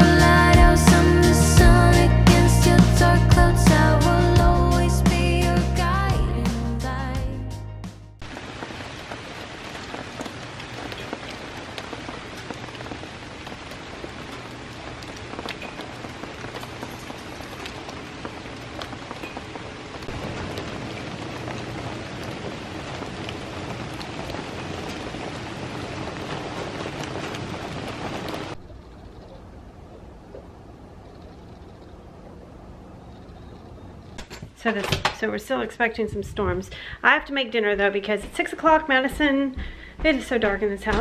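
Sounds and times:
background music: 0:00.0 - 0:08.2
steady rain falling: 0:08.2 - 0:34.4.

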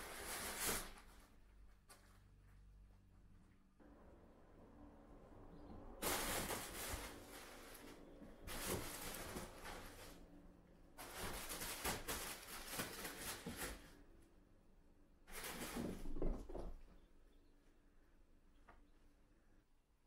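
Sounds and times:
fabric tunnel rustling: 0:06.0 - 0:10.3, 0:10.9 - 0:14.0.

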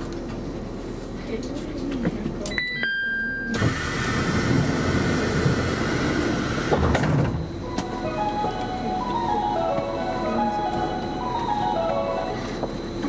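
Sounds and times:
loud train hiss: 0:03.6 - 0:07.0.

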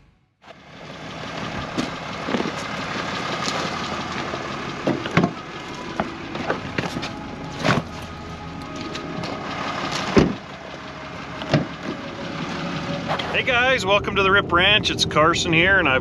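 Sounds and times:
steady hum: 0:01.4 - 0:16.0
footsteps crunching on gravel: 0:03.3 - 0:04.0.

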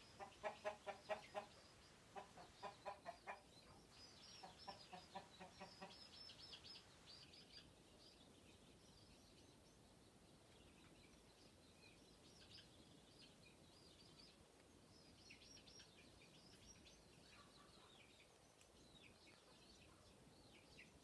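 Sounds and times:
hen alarm clucks: 0:00.0 - 0:03.5, 0:04.4 - 0:06.3
chicks peeping: 0:00.0 - 0:21.0.

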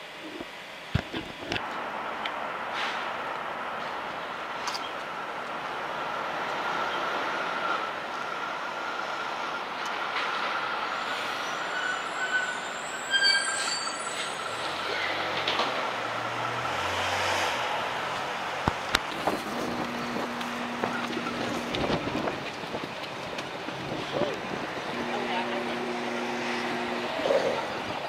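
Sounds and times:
city street traffic: 0:00.0 - 0:28.0
thin high steady squeal: 0:10.8 - 0:15.2
sharp high-pitched squeal: 0:10.8 - 0:15.3.

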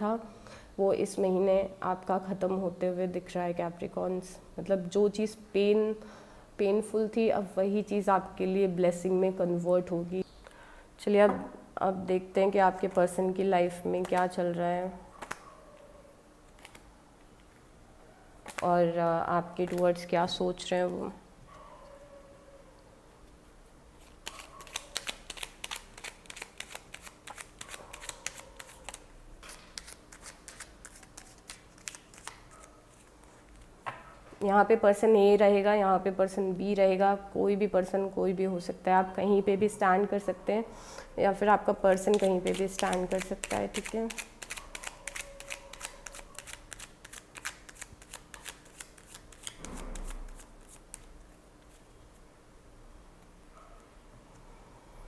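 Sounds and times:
cards being shuffled: 0:16.5 - 0:16.9, 0:18.4 - 0:18.7, 0:24.0 - 0:33.7, 0:42.0 - 0:51.8.

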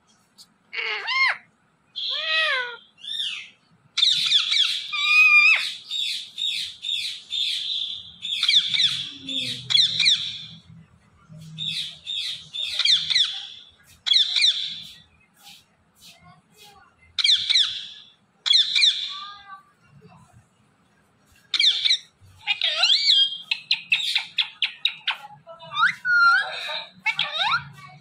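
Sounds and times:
parakeet squawking: 0:00.8 - 0:10.6, 0:11.6 - 0:15.0, 0:17.2 - 0:19.2, 0:21.5 - 0:28.0.

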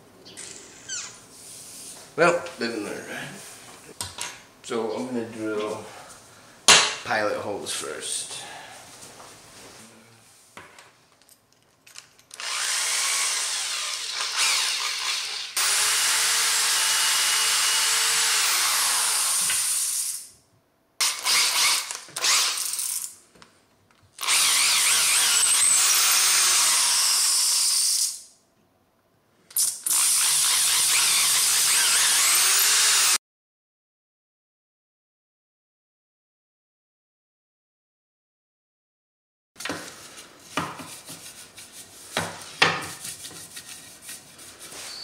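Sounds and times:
electric drill boring into wood: 0:12.4 - 0:20.2, 0:21.0 - 0:23.1, 0:24.2 - 0:28.2, 0:29.6 - 0:33.2.

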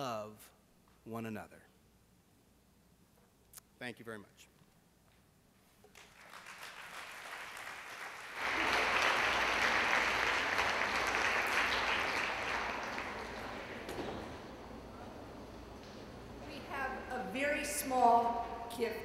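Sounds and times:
audience applauding: 0:05.9 - 0:15.4.

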